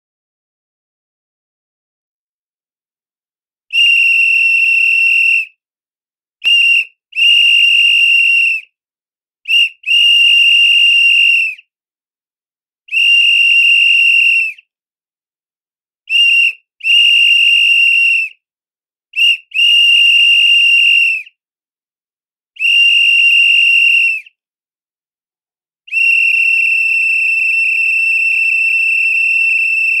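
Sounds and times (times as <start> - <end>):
pea whistle blasts: 3.7 - 5.5, 6.4 - 8.6, 9.5 - 11.6, 12.9 - 14.6, 16.1 - 18.3, 19.2 - 21.3, 22.6 - 24.3, 25.9 - 30.0.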